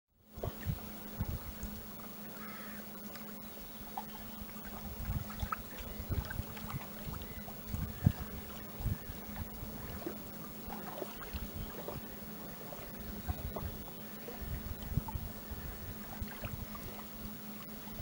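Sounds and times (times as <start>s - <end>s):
steady low hum: 0.1s - 18.0s
lake water lapping: 0.2s - 18.0s.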